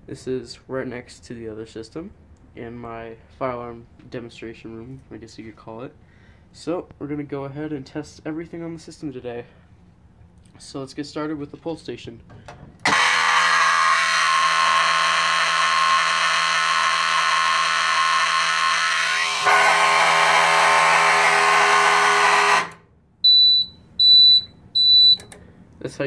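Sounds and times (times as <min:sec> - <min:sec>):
short high buzzer beeps: 0:12.9 - 0:14.0, 0:18.9 - 0:25.2
motor horn alarm tone: 0:12.9 - 0:22.9.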